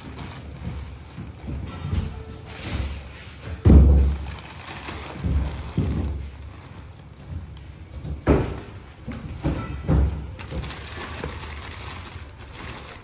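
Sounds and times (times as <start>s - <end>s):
plastic bags rustling: 0.0s - 13.0s
cardboard boxes thumping: 2.6s - 6.5s.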